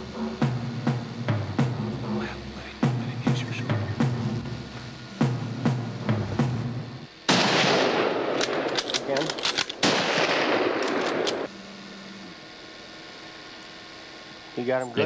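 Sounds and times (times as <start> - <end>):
rifle shots with rolling echo: 7.3 - 11.5
sharp clicks: 8.4 - 11.5.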